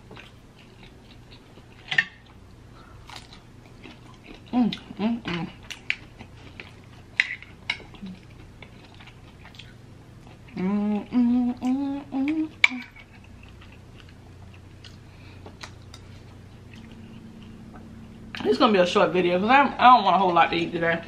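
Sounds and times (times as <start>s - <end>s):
chewing: 0.1s - 18.5s
woman humming: 4.5s - 5.6s, 10.5s - 13.0s.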